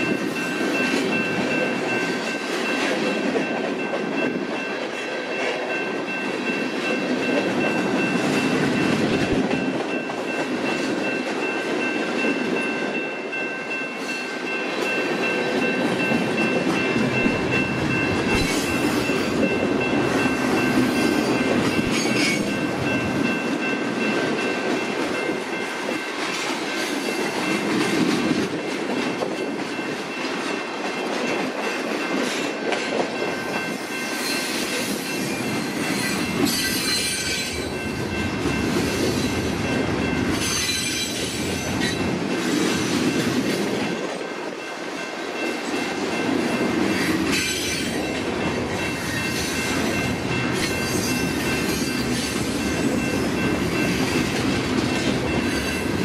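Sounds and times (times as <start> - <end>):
freight train wheels rumbling: 0.0 - 56.0
high-pitched tone: 5.7 - 25.7.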